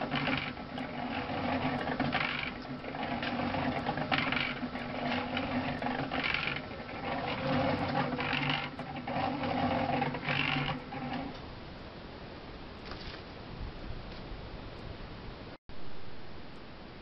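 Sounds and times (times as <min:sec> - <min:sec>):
cement mixer motor hum: 0:00.0 - 0:11.4.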